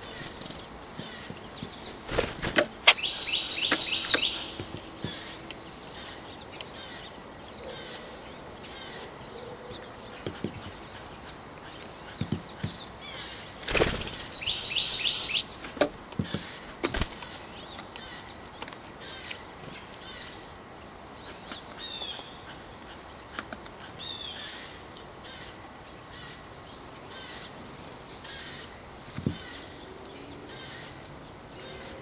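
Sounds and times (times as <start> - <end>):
wing flutters: 0.0 - 3.1, 13.6 - 14.4, 16.6 - 17.4
songbird calling: 0.0 - 32.0.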